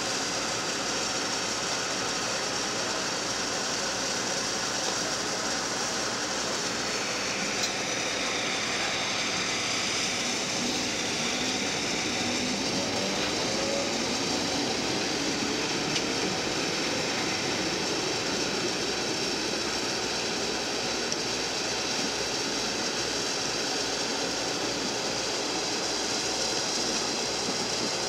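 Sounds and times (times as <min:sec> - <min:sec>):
electric train pulling away: 0:00.0 - 0:28.0
faint rising motor whine: 0:05.0 - 0:22.0.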